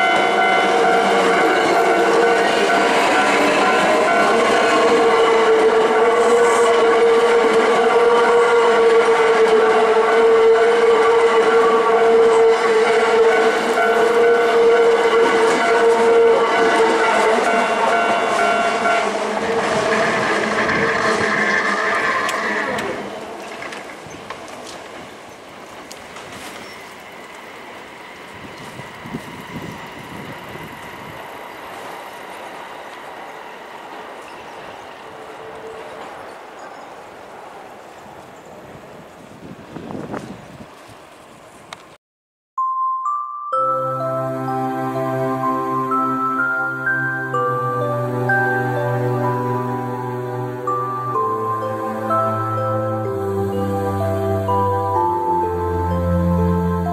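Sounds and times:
steady high tone: 0.0 - 20.2, 42.6 - 56.9
train wheels rumbling on rail: 0.0 - 42.0
train knocks: 15.1 - 35.0
thin high tone: 42.6 - 56.9.

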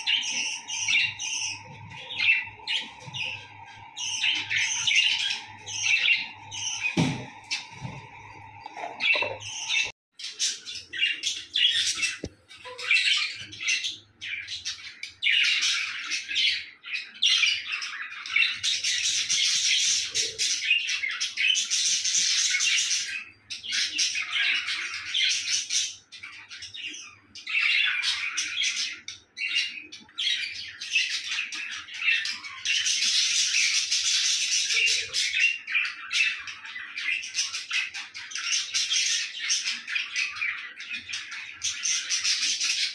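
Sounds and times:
budgerigars chattering and chirping: 0.0 - 7.9.

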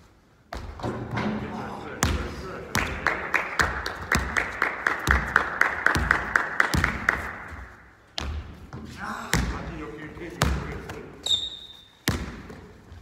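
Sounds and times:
rhythmic hand clapping: 2.6 - 7.8
basketball thuds: 12.0 - 12.7.

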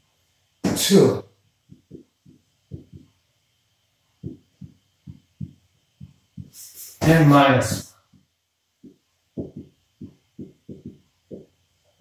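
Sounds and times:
marker tapping on whiteboard: 1.6 - 3.2, 4.2 - 6.6, 7.7 - 11.6.

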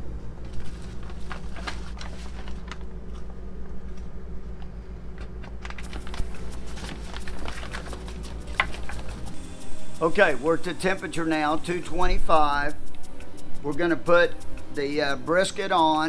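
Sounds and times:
steady low hum: 0.0 - 16.0
wrapping paper rustling: 0.3 - 4.1, 5.2 - 9.4.

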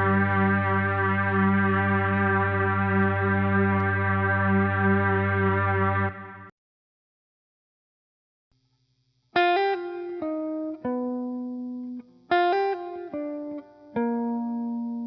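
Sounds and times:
plucked notes: 0.0 - 6.4.

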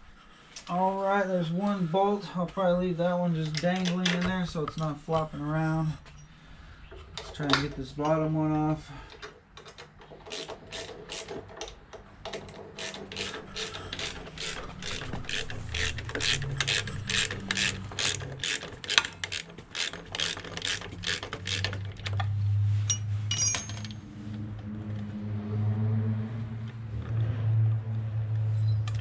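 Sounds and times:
ratchet wrench clicking: 9.8 - 11.6, 12.7 - 22.2.

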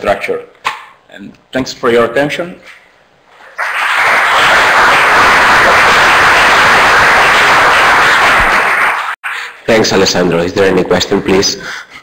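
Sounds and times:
audience applauding: 3.6 - 9.4.

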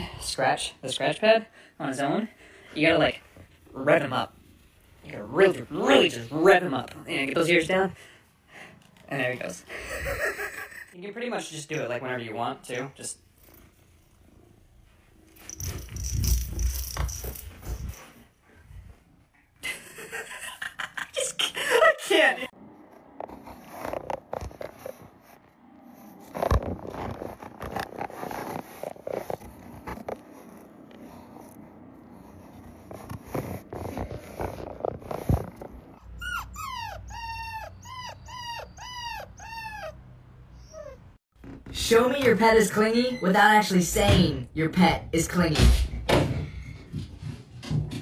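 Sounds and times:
cat clawing a scratch pad: 23.0 - 35.8
puppy whining: 35.9 - 41.2.

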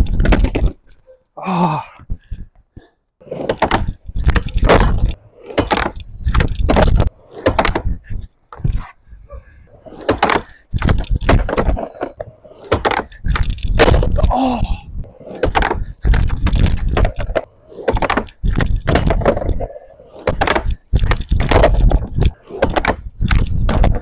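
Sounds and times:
skateboard rolling on ramp: 3.2 - 9.0, 9.6 - 14.3, 15.0 - 24.0
skateboard slapping against ramp: 3.4 - 8.9, 10.0 - 14.3, 15.3 - 24.0.

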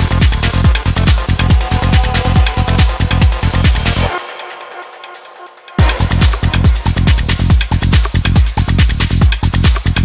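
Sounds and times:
psychedelic trance music: 0.0 - 10.0
rolling bassline: 0.0 - 10.0
ticking hi-hats: 0.0 - 10.0
kick drum: 5.8 - 10.0.

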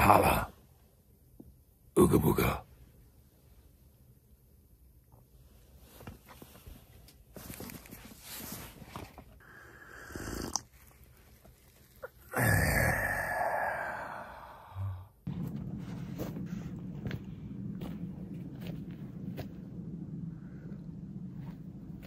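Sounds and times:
harsh vocal exhale: 9.4 - 10.6, 12.3 - 15.2
man gulping a drink: 10.0 - 10.8.

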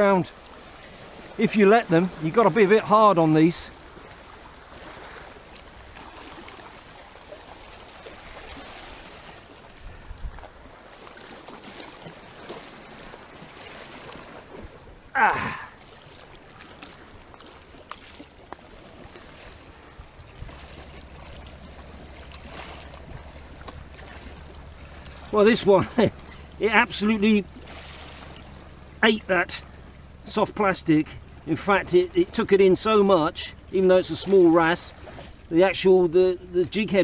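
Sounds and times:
sea water lapping over rocks: 0.0 - 37.0
short falling grunt: 15.2 - 15.8.

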